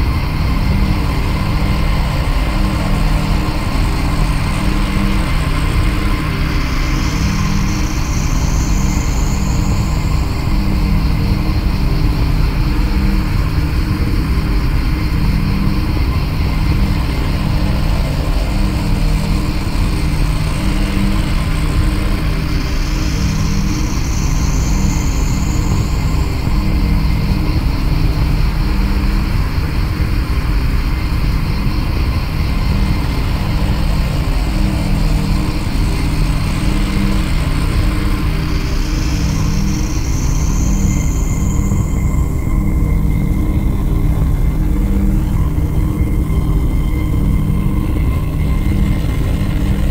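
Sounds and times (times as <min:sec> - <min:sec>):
droning ambient electronic music: 0:00.0 - 0:49.9.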